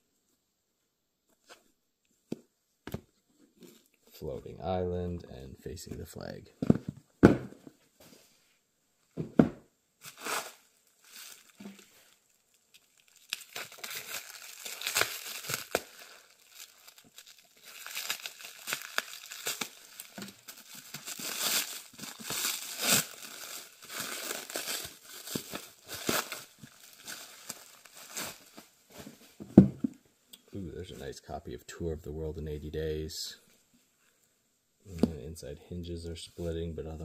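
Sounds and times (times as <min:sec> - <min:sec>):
thump: 0:06.6 - 0:07.6, 0:09.2 - 0:09.6, 0:29.4 - 0:30.0
plastic wrap crinkling and tearing: 0:10.0 - 0:29.4.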